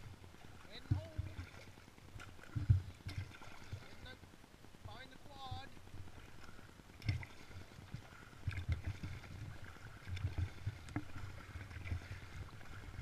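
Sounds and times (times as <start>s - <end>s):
paddle strokes splashing and dripping: 0.0s - 13.0s
paddle knocking against raft: 0.6s - 4.0s.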